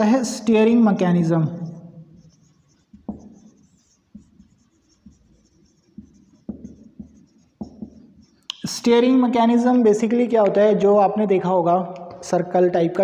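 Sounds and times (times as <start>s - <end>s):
marker pen writing on whiteboard: 0.0s - 9.2s.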